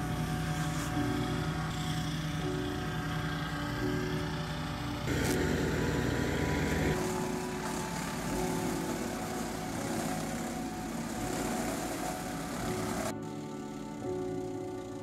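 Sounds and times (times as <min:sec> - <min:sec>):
chipper-shredder engine running: 0:00.0 - 0:15.0
branch being shredded: 0:05.1 - 0:13.2.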